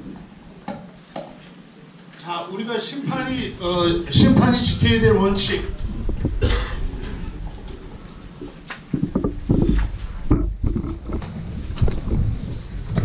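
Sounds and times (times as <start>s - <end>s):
low rumble: 3.1s - 13.0s
microphone handling bumps: 3.1s - 13.0s.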